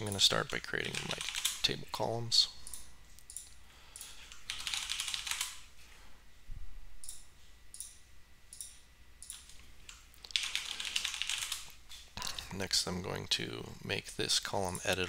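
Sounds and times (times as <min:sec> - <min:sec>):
typing on computer keyboard: 0:00.0 - 0:01.6, 0:04.3 - 0:05.6, 0:10.3 - 0:11.7.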